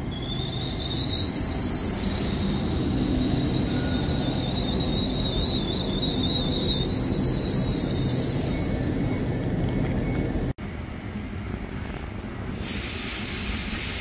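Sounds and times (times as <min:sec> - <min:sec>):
train wheels squealing on rails: 0:00.0 - 0:10.5, 0:12.4 - 0:14.0
train rumbling: 0:00.0 - 0:14.0
high hiss: 0:12.6 - 0:14.0.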